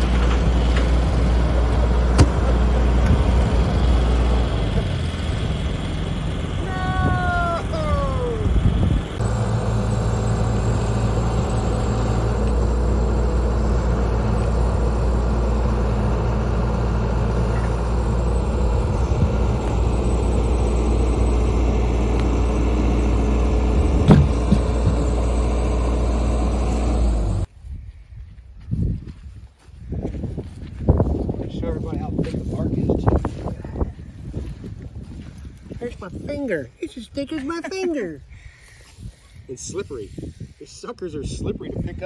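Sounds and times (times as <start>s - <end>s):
excavator diesel engine running: 0.0s - 27.5s.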